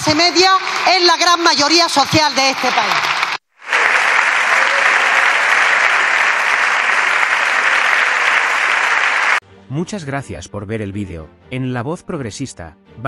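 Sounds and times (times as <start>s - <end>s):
crowd applauding: 0.0s - 9.4s.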